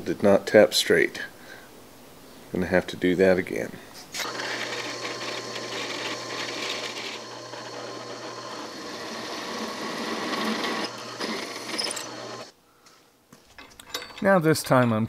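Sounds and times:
drill bit cutting steel: 4.2s - 12.5s
drill press humming: 4.2s - 12.5s.

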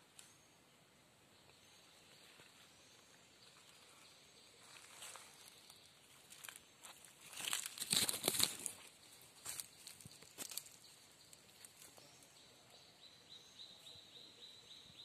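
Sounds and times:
brushing past undergrowth: 2.1s - 10.9s
footsteps crunching dry leaves: 4.6s - 10.9s.

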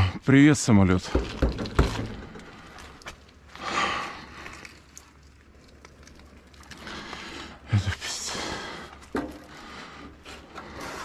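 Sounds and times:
footsteps on debris: 1.0s - 7.3s.

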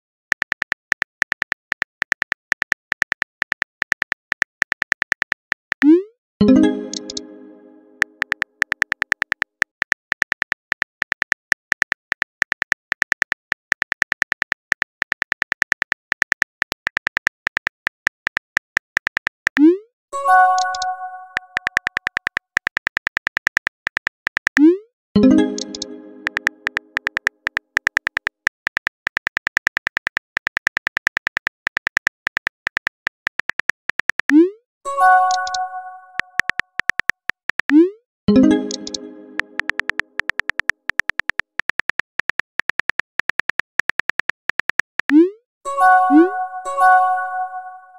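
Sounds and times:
plucked tone ringing: 6.4s - 8.2s, 25.2s - 27.0s, 38.3s - 40.1s, 45.7s - 47.9s
smartphone keyboard clicks: 8.0s - 19.6s, 20.6s - 24.6s, 25.4s - 34.3s, 38.7s - 45.1s.

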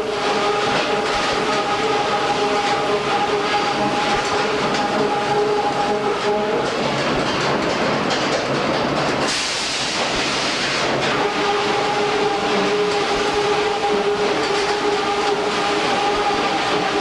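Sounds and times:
steady machine whine: 0.0s - 7.5s, 11.0s - 17.0s
sawmill machinery clattering: 0.0s - 17.0s
hiss: 9.2s - 14.0s.

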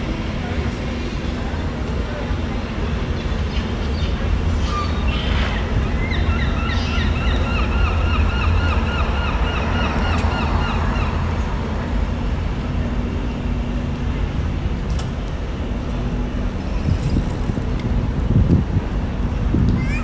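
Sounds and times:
city street traffic rumble: 0.0s - 20.0s
wind buffeting microphone: 16.0s - 20.0s.

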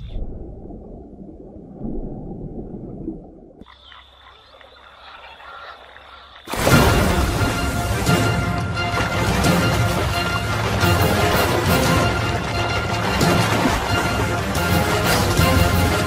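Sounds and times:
muffled waterside ambience: 0.0s - 16.0s
loud splashing crash: 6.5s - 15.6s.

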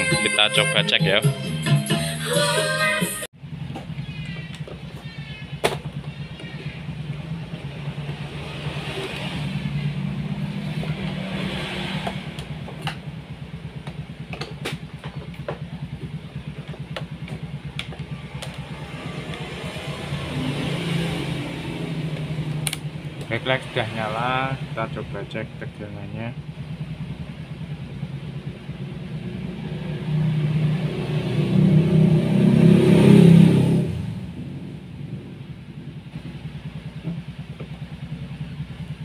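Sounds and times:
engine running: 3.3s - 39.0s
sharp clicks: 22.5s - 22.9s.

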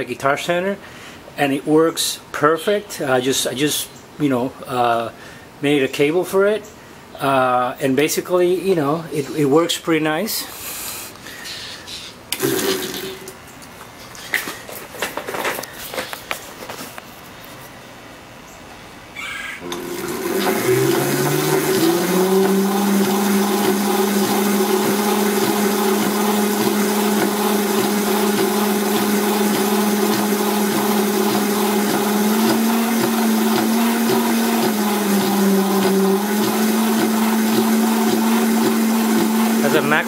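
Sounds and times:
electric motor whine: 19.6s - 40.0s.

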